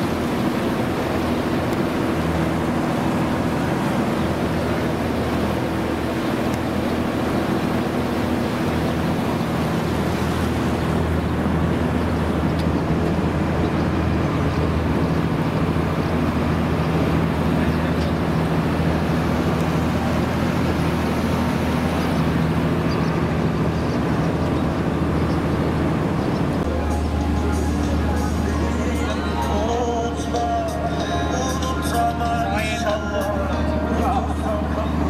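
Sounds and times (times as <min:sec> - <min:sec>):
boat engine humming: 0:00.0 - 0:35.0
broad rush of noise: 0:00.0 - 0:35.0.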